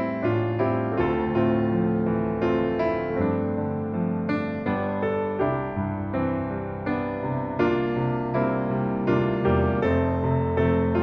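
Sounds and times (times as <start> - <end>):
gentle piano music: 0.0 - 11.0.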